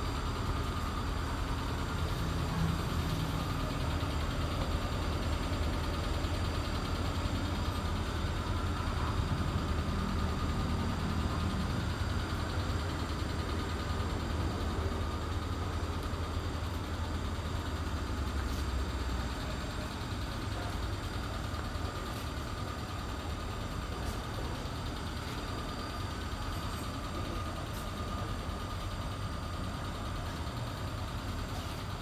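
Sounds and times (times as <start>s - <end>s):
car engine idling: 0.0s - 32.0s.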